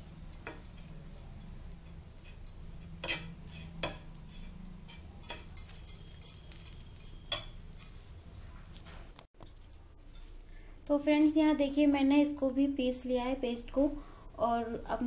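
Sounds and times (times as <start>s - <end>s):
light frying sizzle: 0.0s - 9.6s
plastic spoon scraping on griddle: 1.6s - 5.5s.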